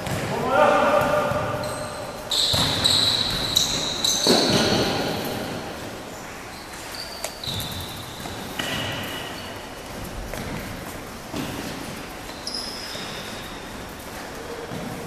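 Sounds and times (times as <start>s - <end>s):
ball kicked and bouncing: 0.0s - 1.6s, 2.5s - 5.0s, 10.0s - 11.8s
sneakers squeaking on floor: 0.0s - 15.0s.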